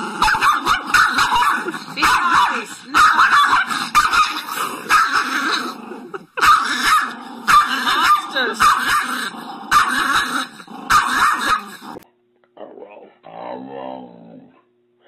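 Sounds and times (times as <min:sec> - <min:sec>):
small dog yapping and growling: 0:00.0 - 0:12.0.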